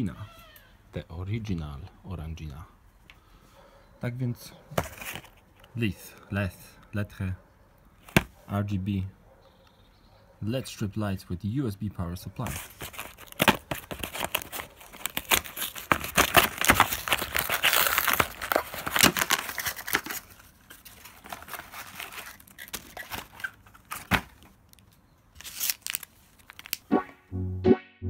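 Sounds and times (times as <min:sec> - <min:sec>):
packaging crinkling and tearing: 0:12.5 - 0:26.8.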